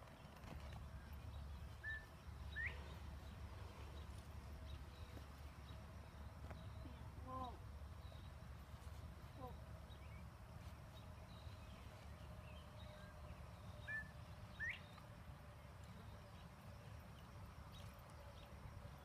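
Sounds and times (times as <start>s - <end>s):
bird chirps: 0.0s - 8.4s, 10.9s - 15.0s.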